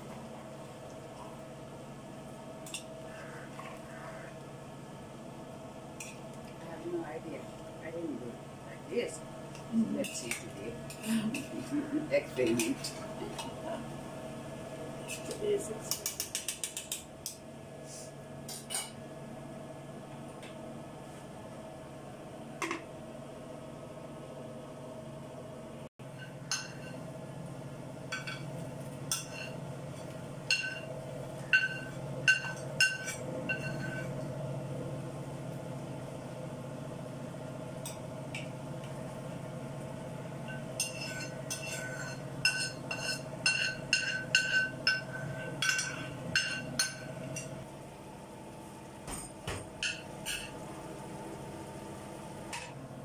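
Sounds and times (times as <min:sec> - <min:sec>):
steady low hum: 0:00.0 - 0:53.0
metal spoon clinking on pans: 0:26.2 - 0:27.0, 0:29.1 - 0:29.6, 0:30.5 - 0:34.1, 0:40.5 - 0:47.6.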